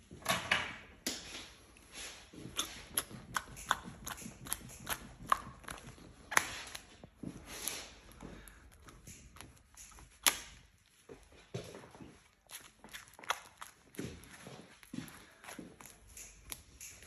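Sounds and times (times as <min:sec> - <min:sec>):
face mask peeling off skin: 0:02.5 - 0:11.0, 0:12.2 - 0:17.0.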